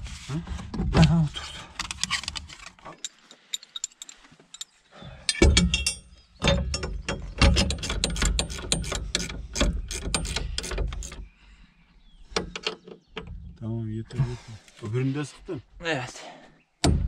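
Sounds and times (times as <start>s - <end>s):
metal tools clicking on fittings: 1.8s - 4.7s, 5.3s - 11.2s.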